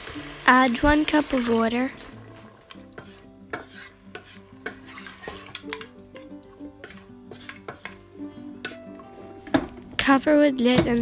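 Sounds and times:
background music: 0.0s - 11.0s
wooden spoon scraping a pot: 2.9s - 5.9s, 6.8s - 9.2s.

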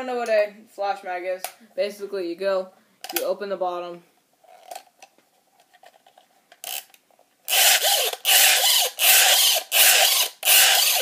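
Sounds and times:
rasping ratchet strokes: 7.5s - 11.0s.

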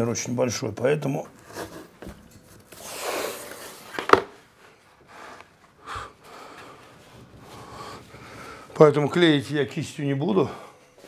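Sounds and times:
paper and board rustling: 1.4s - 4.4s
wooden panel knocking down: 4.0s - 4.4s.

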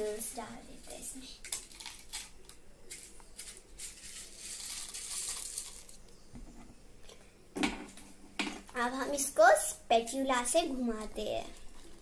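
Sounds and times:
dry noodles crushed and crackling: 1.4s - 6.1s.

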